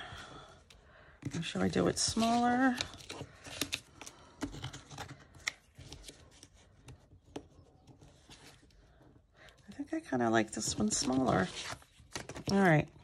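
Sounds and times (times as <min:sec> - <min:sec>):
paper rustling: 0:01.3 - 0:07.0, 0:10.6 - 0:12.8.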